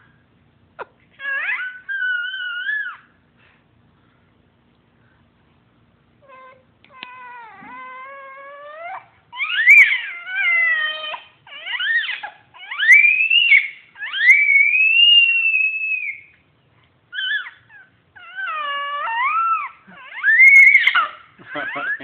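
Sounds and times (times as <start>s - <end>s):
baby screaming and squealing: 1.2s - 3.2s, 6.3s - 16.3s, 17.1s - 22.0s.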